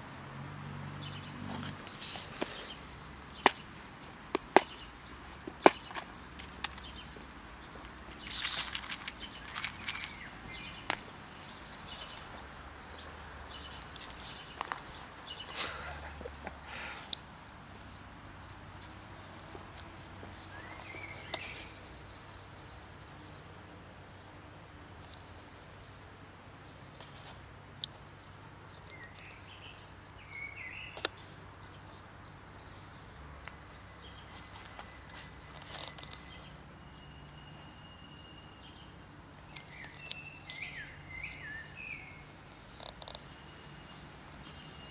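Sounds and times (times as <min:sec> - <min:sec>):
small clicks and rustles: 0:07.8 - 0:11.0, 0:34.2 - 0:36.5, 0:42.7 - 0:43.4
bird chirps: 0:32.6 - 0:44.9.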